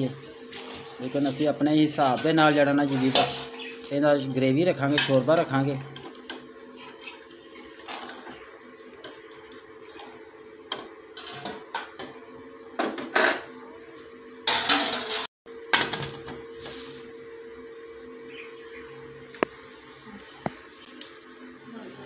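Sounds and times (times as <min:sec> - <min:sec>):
ladle stirring in a pot: 0:00.3 - 0:03.8, 0:04.8 - 0:11.6.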